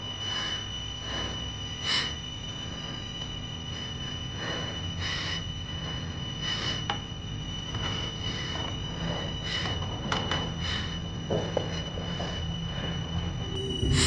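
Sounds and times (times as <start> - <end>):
high-pitched drone tones: 13.3 - 14.0
low rumble: 13.4 - 14.0
hissing swells: 13.5 - 14.0.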